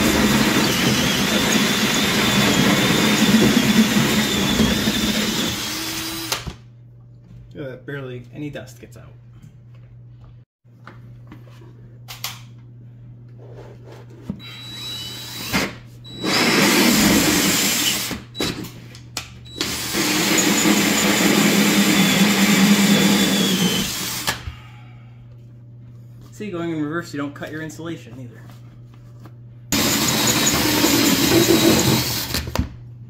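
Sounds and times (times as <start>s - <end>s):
cordless drill grinding drywall: 0.0s - 6.5s, 14.4s - 18.6s, 19.5s - 24.4s, 29.7s - 32.6s.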